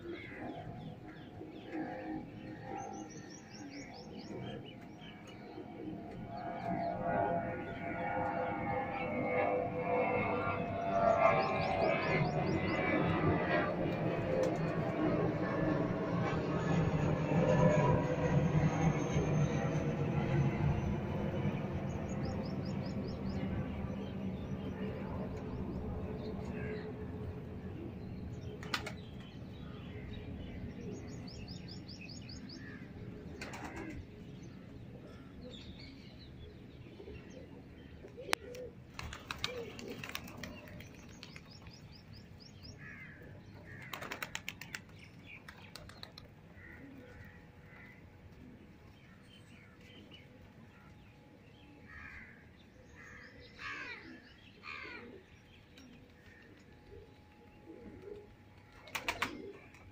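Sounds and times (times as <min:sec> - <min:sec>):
pigeon wings flapping: 0:38.9 - 0:41.6, 0:43.8 - 0:46.3, 0:58.1 - 0:59.8.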